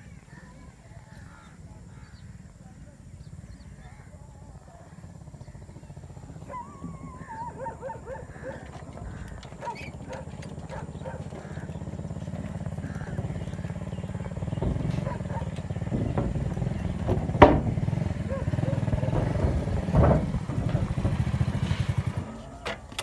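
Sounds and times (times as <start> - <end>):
boat engine throbbing: 4.4 - 23.0
wavering animal call: 5.6 - 15.8.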